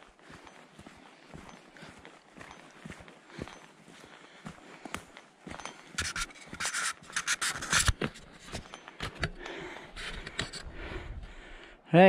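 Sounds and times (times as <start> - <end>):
footsteps rustling on hill path: 0.0 - 11.8.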